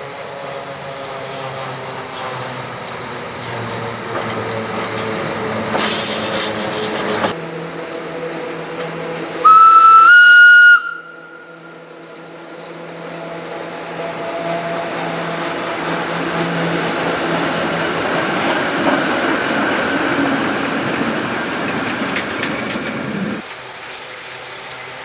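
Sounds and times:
train running on rails: 0.0s - 25.0s
locomotive whistle: 9.4s - 11.8s.

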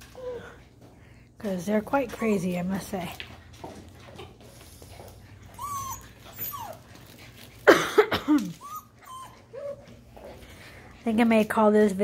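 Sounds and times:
puppies whining and yipping: 5.3s - 7.6s, 8.5s - 10.4s
puppy yelping: 5.5s - 6.9s, 8.5s - 9.9s.

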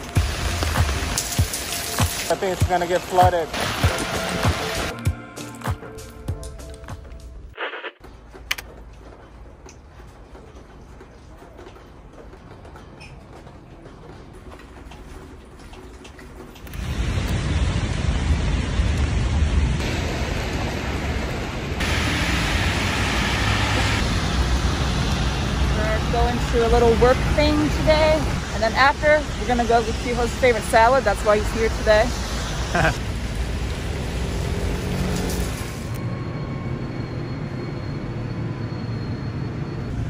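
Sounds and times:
rain hissing: 0.0s - 4.9s, 16.6s - 27.0s, 27.7s - 36.0s
tyres on wet road: 0.0s - 5.0s, 13.7s - 36.0s
low traffic rumble: 8.0s - 40.0s.

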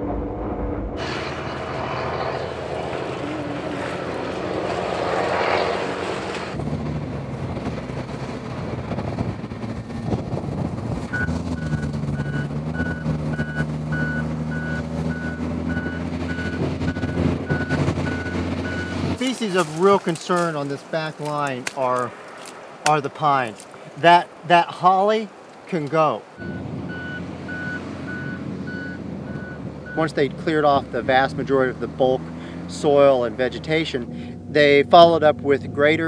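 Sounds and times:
heavy machinery diesel engines: 0.0s - 24.2s, 25.7s - 36.0s
backup alarm beeping: 11.1s - 19.0s, 26.4s - 30.1s.

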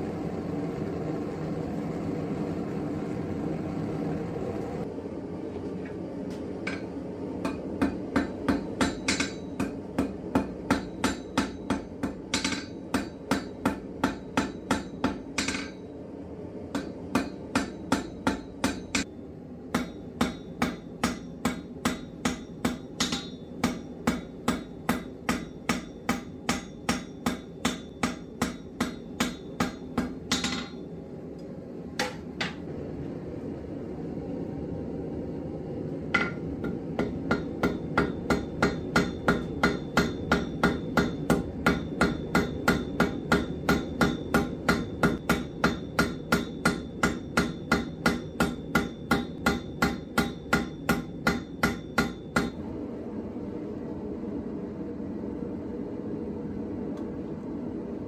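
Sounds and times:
hammer striking steel on anvil: 6.6s - 15.9s, 16.7s - 30.9s, 32.0s - 32.7s, 36.1s - 52.6s.

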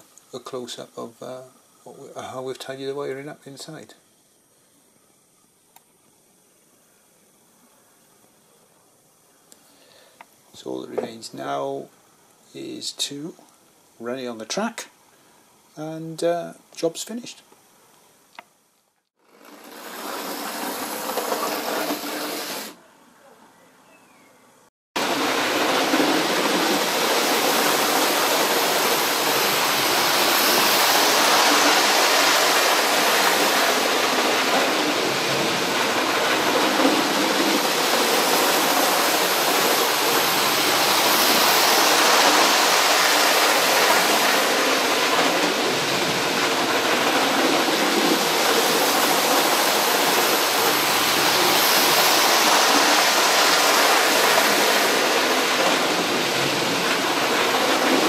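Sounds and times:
model train rolling on rails: 19.2s - 22.8s, 25.0s - 58.0s.

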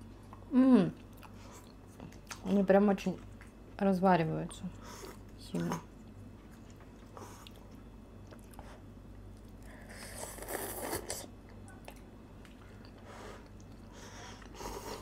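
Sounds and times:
quiet chewing: 0.1s - 3.6s, 4.8s - 15.0s
person slurping noodles: 9.8s - 11.3s.

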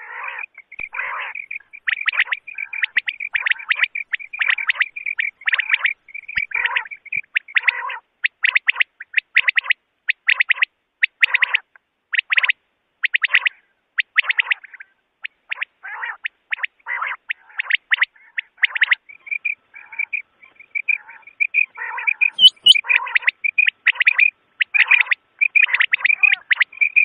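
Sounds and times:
quail calls: 0.0s - 27.0s
faint steady whistle: 22.4s - 22.8s.

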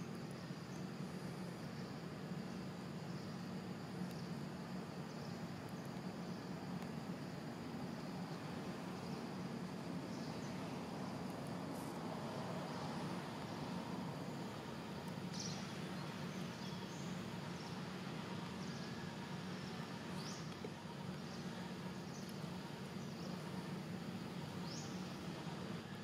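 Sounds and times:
low hum and hiss: 0.0s - 26.0s.

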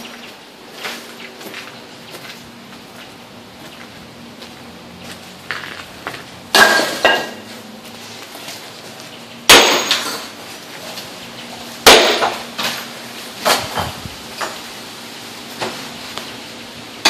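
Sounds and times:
sledgehammer striking concrete: 6.6s - 7.4s, 9.5s - 10.3s, 11.8s - 12.4s.

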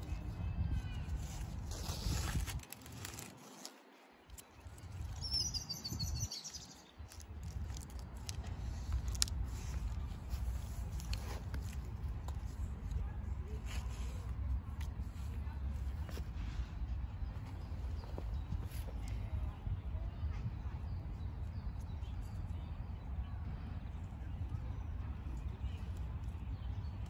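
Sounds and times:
wind rumble on microphone: 0.0s - 3.2s, 4.3s - 27.0s
strap and buckle rustles and clicks: 1.1s - 5.3s, 6.4s - 16.3s
bird chirping: 5.0s - 7.2s.

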